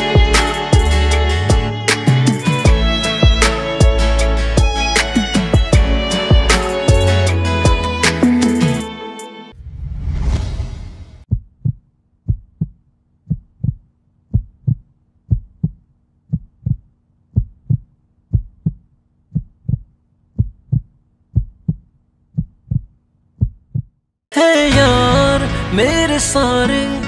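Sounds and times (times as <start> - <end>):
heartbeat thumps: 0.2 - 8.0, 11.3 - 23.9
rushing swell: 9.5 - 11.2.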